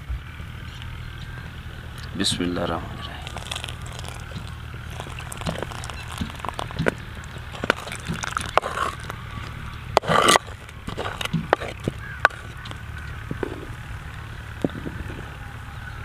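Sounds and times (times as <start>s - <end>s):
liquid pouring rush: 3.0s - 12.6s
wooden spoon stirring liquid: 3.2s - 12.8s.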